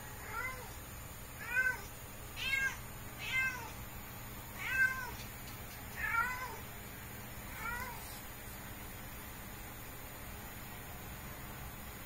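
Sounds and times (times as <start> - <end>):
cat meowing: 0.2 - 0.8, 1.4 - 3.8, 4.6 - 5.2, 6.0 - 6.6, 7.5 - 8.2.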